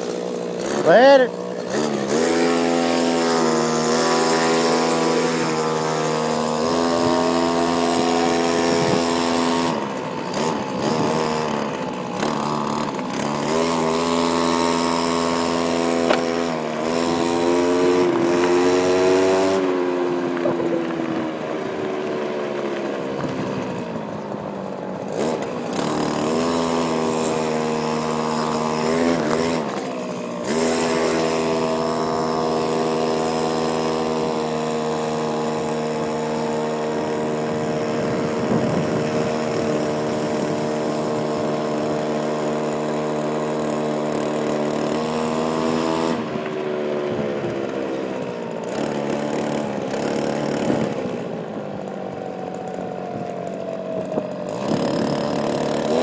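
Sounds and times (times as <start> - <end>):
scooter engine revving: 0.0 - 56.0.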